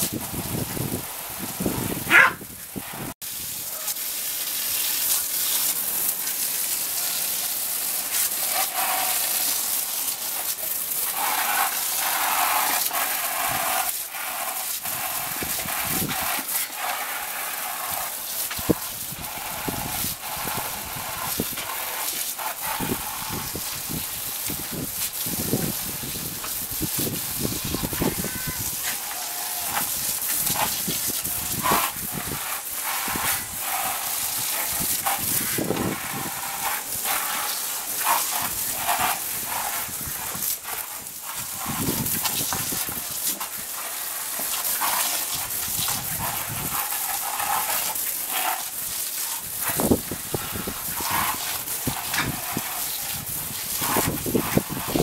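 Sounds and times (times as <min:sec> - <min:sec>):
hose nozzle spraying water: 0:00.0 - 0:55.0
dog barking: 0:02.1 - 0:02.4.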